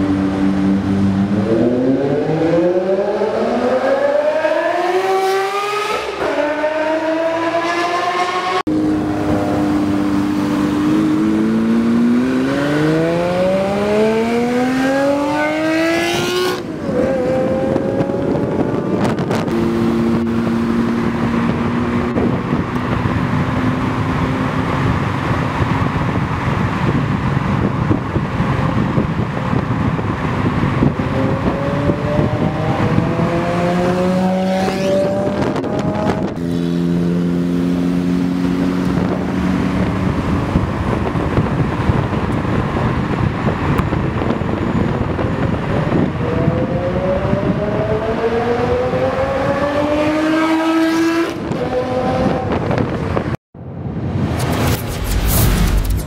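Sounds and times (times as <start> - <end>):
car engine revving: 0.0 - 26.2.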